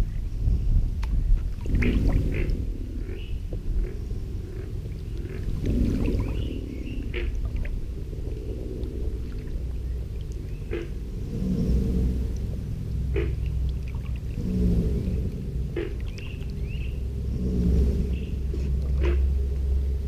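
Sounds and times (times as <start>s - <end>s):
alligators bellowing: 1.6s - 20.0s.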